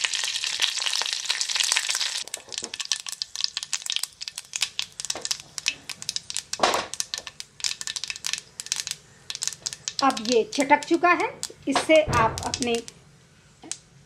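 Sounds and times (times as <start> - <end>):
spices crackling in hot oil: 0.0 - 13.0
loud thud: 11.8 - 12.8.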